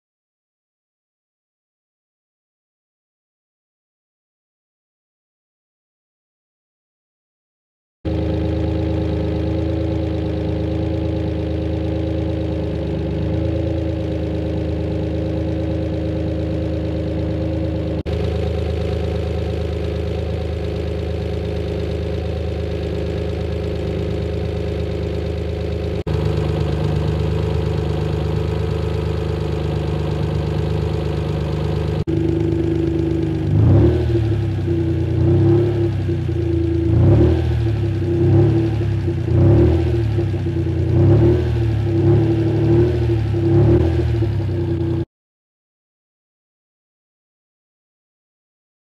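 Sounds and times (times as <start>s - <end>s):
car engine idling: 8.1s - 45.0s
engine revving: 8.1s - 45.0s.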